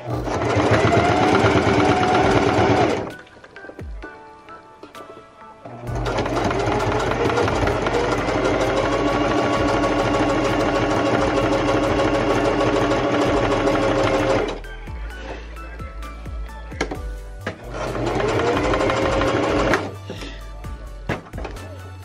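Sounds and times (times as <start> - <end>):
sewing machine stitching: 0.0 - 3.1, 5.9 - 14.6, 17.6 - 19.9.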